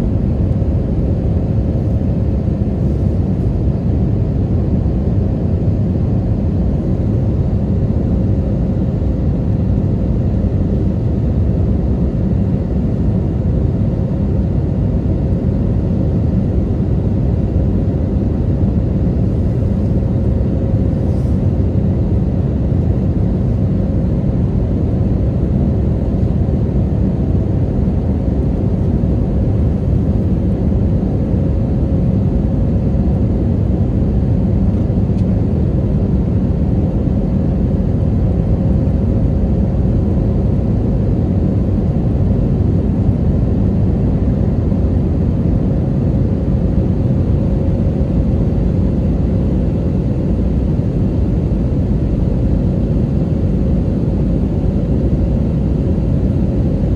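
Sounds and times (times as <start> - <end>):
airliner cabin rumble: 0.0 - 56.9.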